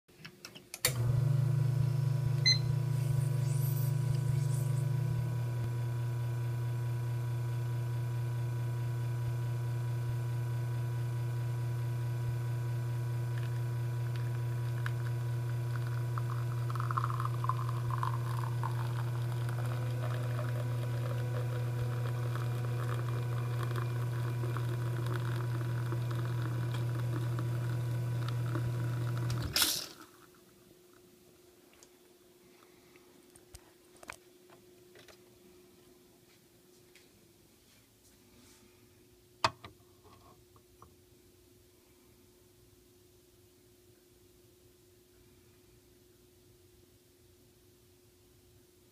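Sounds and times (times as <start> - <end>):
espresso pump humming: 0.9 - 30.3
espresso trickling into a glass: 1.1 - 5.6, 13.0 - 30.1.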